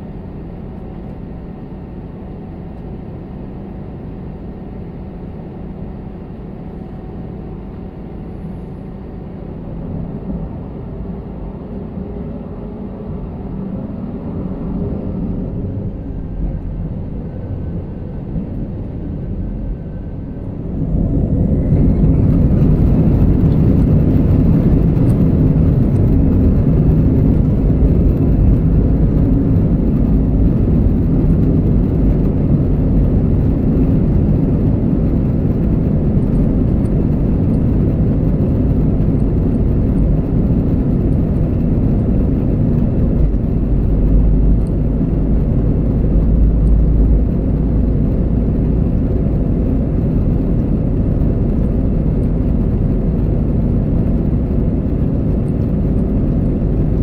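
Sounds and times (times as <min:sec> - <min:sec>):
airplane cabin rumble: 0:00.0 - 0:57.0.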